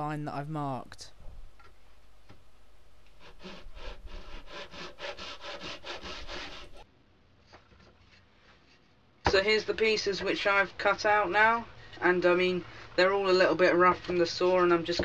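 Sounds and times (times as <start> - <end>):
hand saw rasping through wood: 3.2 - 6.8.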